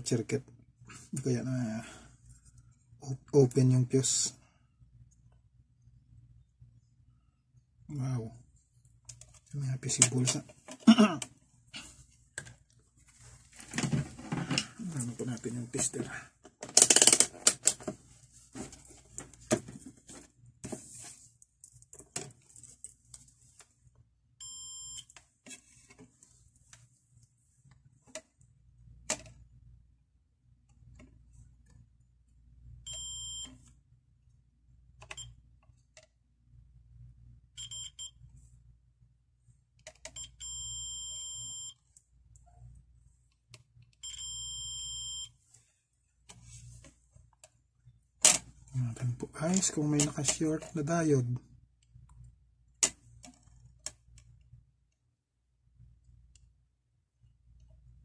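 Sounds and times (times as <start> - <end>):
multimeter continuity buzzer beeping: 24.4 - 25.1, 32.9 - 33.5, 37.6 - 38.2, 40.2 - 41.8, 44.0 - 45.3.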